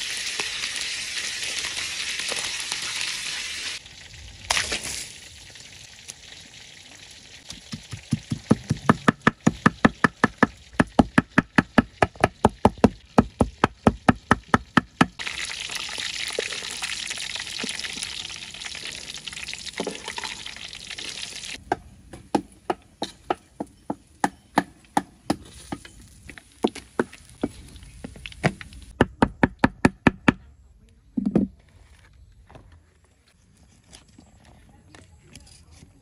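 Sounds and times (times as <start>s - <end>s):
food frying in oil: 0.0s - 21.6s.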